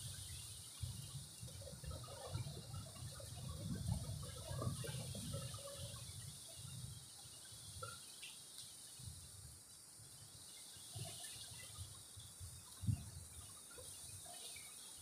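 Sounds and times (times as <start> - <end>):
insect drone: 4.7 - 15.0.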